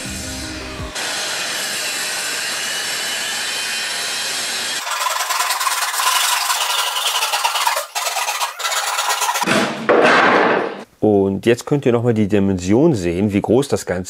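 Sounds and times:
circular saw cutting wood: 0.0s - 9.5s
hand saw rasping through wood: 4.4s - 9.5s.

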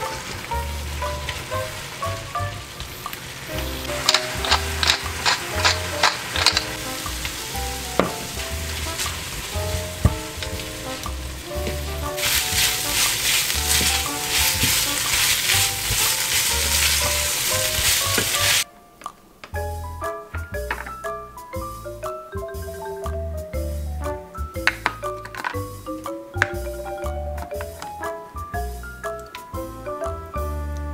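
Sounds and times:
food sizzling in frying pan: 0.0s - 18.7s
soft background music: 0.0s - 30.9s.

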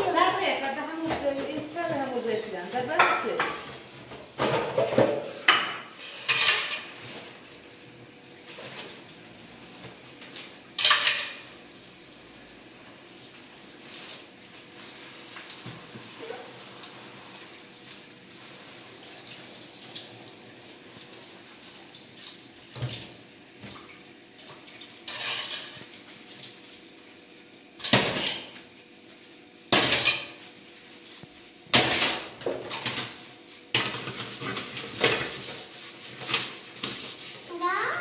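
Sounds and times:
dishes clattering in a metal sink: 0.0s - 7.5s, 8.4s - 9.2s, 9.8s - 11.6s, 15.4s - 17.5s, 22.7s - 26.1s, 27.8s - 28.7s, 29.6s - 30.6s, 31.7s - 37.2s.

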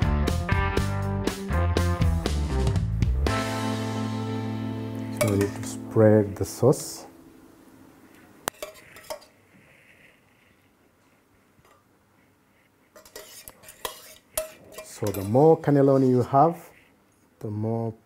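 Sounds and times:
metal spoon clinking on dishes: 5.1s - 5.7s, 8.5s - 9.3s, 13.0s - 15.7s.

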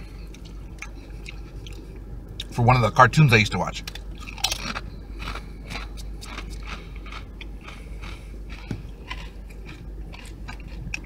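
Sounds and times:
chip crunching while chewed: 3.8s - 11.0s.

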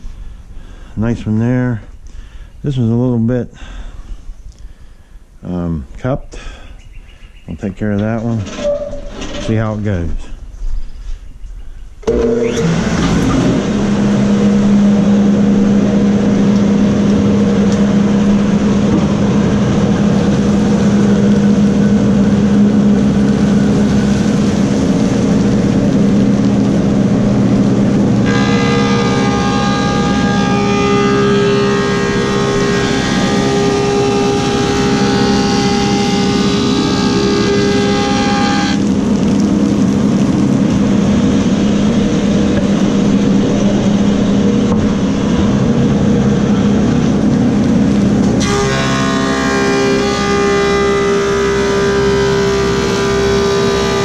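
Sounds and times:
high whine of planer cutting wood: 12.0s - 26.0s, 26.8s - 39.0s, 48.3s - 54.0s
planer humming: 12.0s - 39.5s, 48.2s - 54.0s.

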